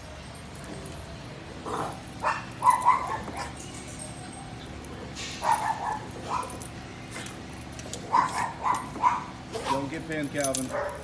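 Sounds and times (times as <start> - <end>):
small dogs yipping and barking: 1.6 - 10.0, 10.6 - 11.0.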